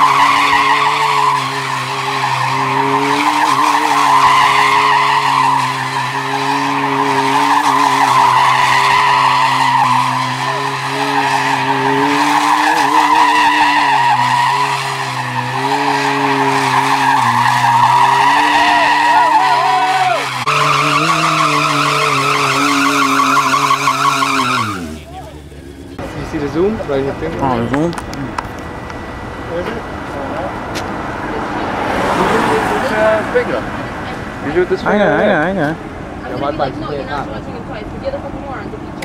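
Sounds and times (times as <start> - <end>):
motorcycle engine at high revs: 20.4 - 28.5.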